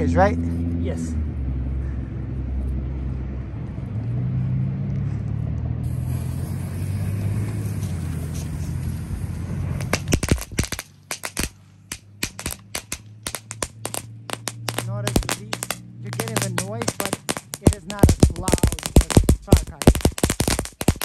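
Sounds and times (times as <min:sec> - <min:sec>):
steady low rumble: 0:01.1 - 0:10.8, 0:11.5 - 0:21.0
firework noisemakers popping: 0:05.8 - 0:21.0.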